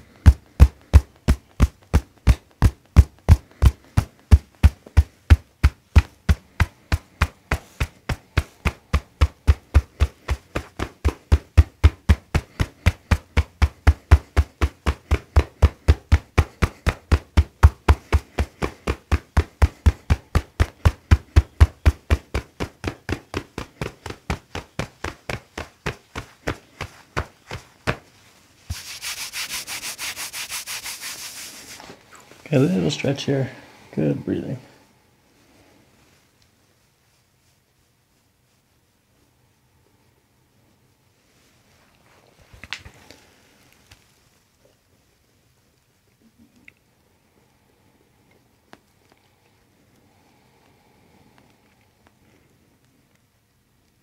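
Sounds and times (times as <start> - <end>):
fists thumping on a back: 0.0 - 28.1
hands rubbing over a shirt: 0.0 - 33.0, 36.0 - 39.3.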